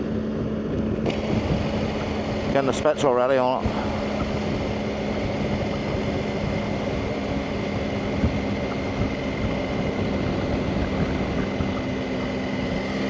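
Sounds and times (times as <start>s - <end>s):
motorcycle engine cruising: 0.0s - 13.0s
wind and road noise: 0.0s - 13.0s.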